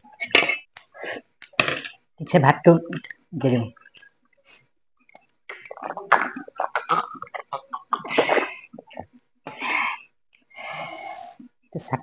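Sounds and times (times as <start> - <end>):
man gulping water: 5.0 - 9.2.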